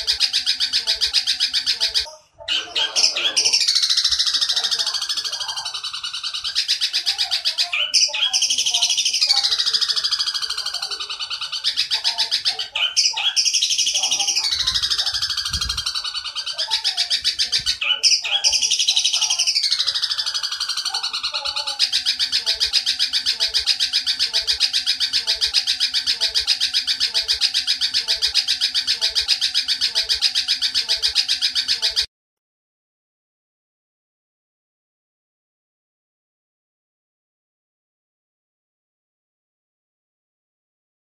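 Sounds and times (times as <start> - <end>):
sparrow chattering: 0.0 - 32.1.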